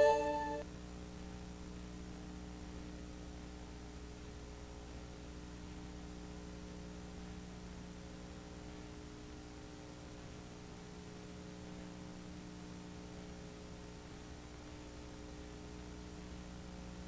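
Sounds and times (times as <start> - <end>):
tape hiss: 0.0 - 1.6
faint electrical hum: 0.0 - 17.0.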